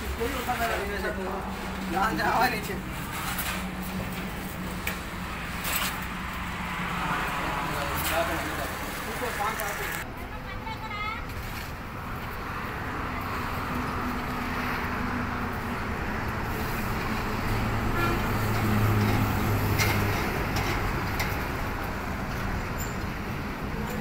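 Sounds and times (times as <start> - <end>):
traffic hiss: 6.7 - 10.0.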